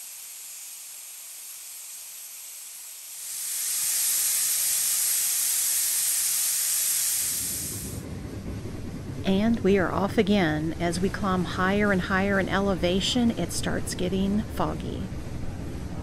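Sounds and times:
steam locomotive hissing steam: 0:00.0 - 0:08.0.

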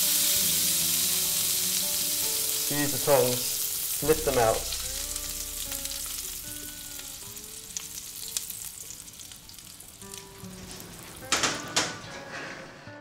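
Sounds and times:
food sizzling in a frying pan: 0:00.0 - 0:11.7
soft background music: 0:00.0 - 0:13.0.

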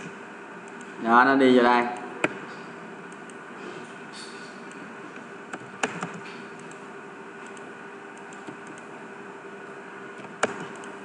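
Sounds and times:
steady low hum and hiss: 0:00.0 - 0:11.0
computer keyboard and mouse clicks: 0:05.5 - 0:06.8, 0:07.4 - 0:07.6, 0:08.2 - 0:08.9, 0:10.2 - 0:11.0.

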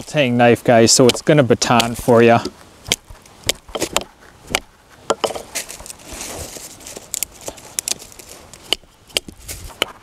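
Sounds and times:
wood cracking apart: 0:05.4 - 0:09.8.

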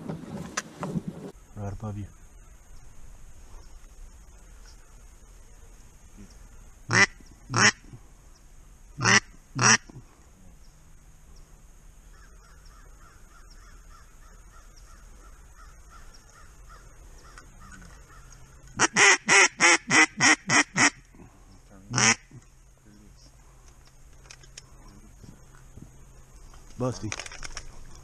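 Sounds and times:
duck call quacks: 0:06.9 - 0:07.8, 0:09.0 - 0:09.9, 0:18.8 - 0:21.0, 0:21.9 - 0:22.3.

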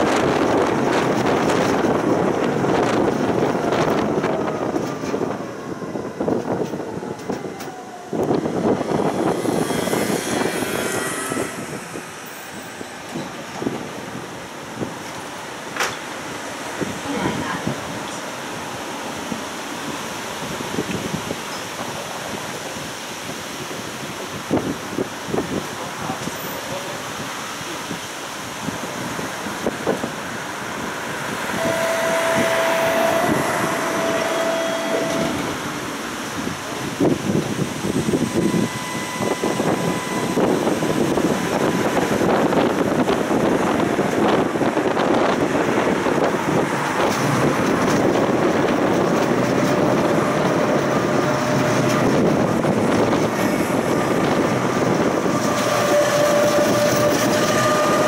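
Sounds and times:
tram wheels rumbling and rattling: 0:00.0 - 0:58.0
steady high tone: 0:08.1 - 0:13.4, 0:31.3 - 0:37.1, 0:37.8 - 0:43.2.

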